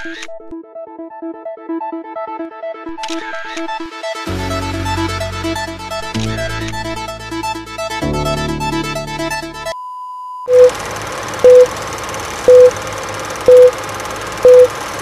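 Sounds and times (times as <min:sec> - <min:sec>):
electronic background music: 0:00.0 - 0:09.8
loud short beeps: 0:09.8 - 0:10.7, 0:11.4 - 0:11.7, 0:12.5 - 0:12.7, 0:13.5 - 0:13.7, 0:14.4 - 0:14.7.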